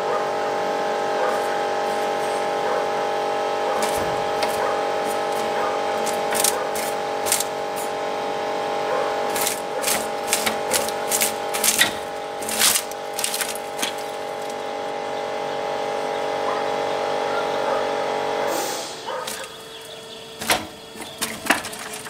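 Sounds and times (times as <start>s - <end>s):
band sawmill whine: 0.0s - 21.4s
sharp clicks and cracks: 3.8s - 7.6s, 9.3s - 14.7s.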